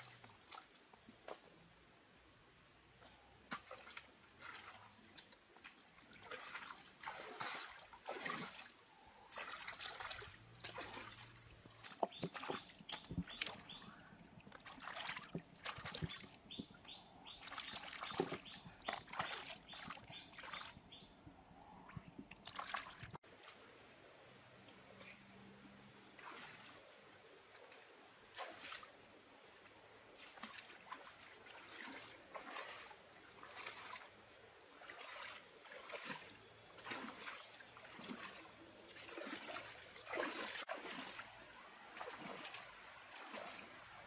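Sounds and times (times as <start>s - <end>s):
hands splashing in shallow water: 3.5s - 16.6s, 17.3s - 20.8s, 22.3s - 23.2s, 30.2s - 34.1s, 34.7s - 41.4s, 42.0s - 44.0s.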